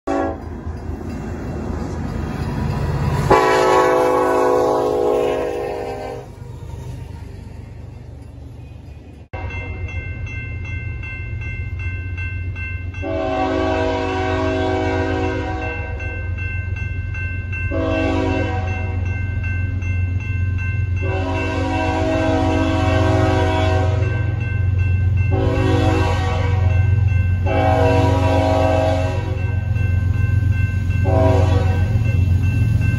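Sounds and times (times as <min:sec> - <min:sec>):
locomotive air horn blasts: 0:00.1 - 0:00.4, 0:03.3 - 0:06.3, 0:13.0 - 0:16.0, 0:17.7 - 0:18.9, 0:21.0 - 0:24.4, 0:25.3 - 0:26.7, 0:27.4 - 0:29.4, 0:31.0 - 0:32.0.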